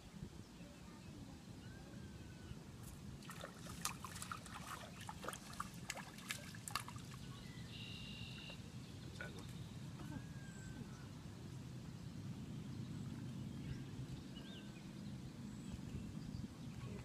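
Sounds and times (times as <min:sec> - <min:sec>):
fish splashing at water surface: 0:03.2 - 0:07.3.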